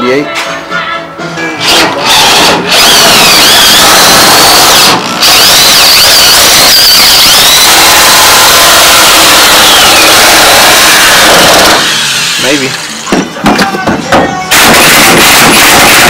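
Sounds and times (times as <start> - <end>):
drill bit squealing: 1.6 - 12.8, 14.5 - 16.0
cordless drill drilling metal: 1.6 - 12.9, 14.5 - 16.0.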